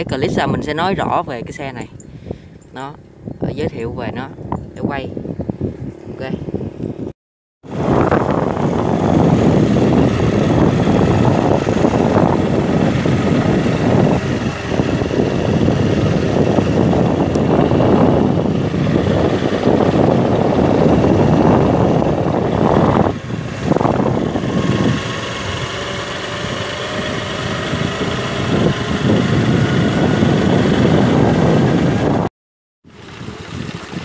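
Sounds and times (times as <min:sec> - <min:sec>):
wind buffeting microphone: 0:00.0 - 0:32.3, 0:32.9 - 0:34.0
motorbike engine running: 0:07.7 - 0:32.3, 0:32.9 - 0:34.0.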